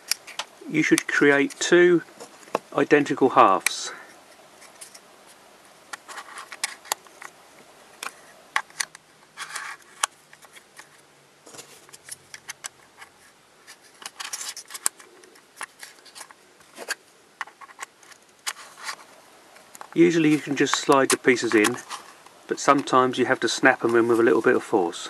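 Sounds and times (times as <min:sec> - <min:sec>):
plastic scraping rubs: 0:03.5 - 0:07.3, 0:08.0 - 0:19.1, 0:19.9 - 0:22.9.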